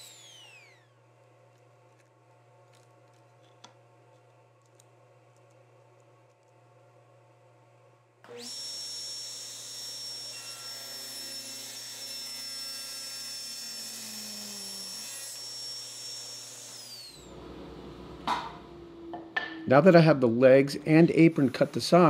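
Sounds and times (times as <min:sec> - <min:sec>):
table saw cutting wood: 0:00.0 - 0:01.0, 0:08.3 - 0:19.0, 0:19.9 - 0:22.0.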